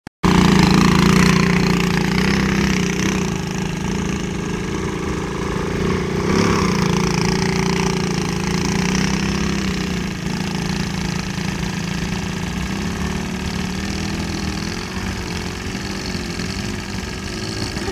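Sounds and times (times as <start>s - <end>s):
quad bike engine revving: 0.2s - 17.9s.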